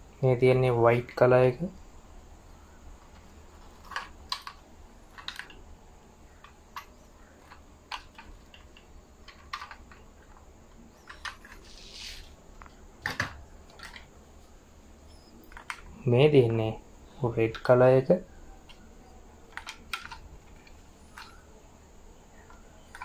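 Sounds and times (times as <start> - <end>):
scrape: 11.6 - 12.4.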